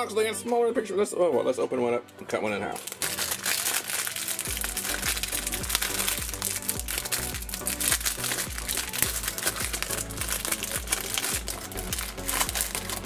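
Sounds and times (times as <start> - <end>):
background music with bass line: 2.1 - 13.0
plastic wrapper crinkling: 2.7 - 13.0.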